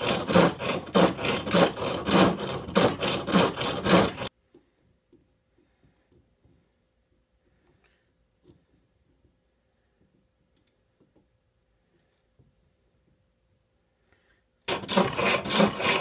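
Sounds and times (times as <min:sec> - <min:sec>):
lathe tool scraping wood: 0:00.0 - 0:04.3, 0:14.7 - 0:16.0.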